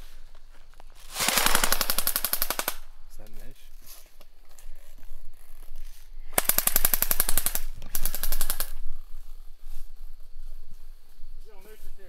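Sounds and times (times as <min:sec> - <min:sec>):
airsoft gun full-auto bursts: 0:01.1 - 0:02.9, 0:06.4 - 0:08.8.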